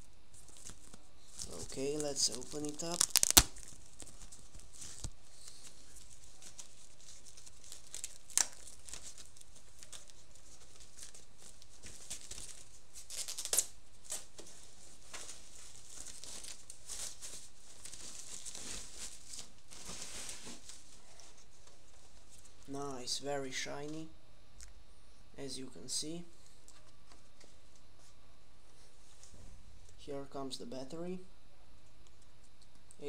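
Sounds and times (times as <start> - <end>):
foam and plastic wrapping crinkling: 0.0 - 22.6.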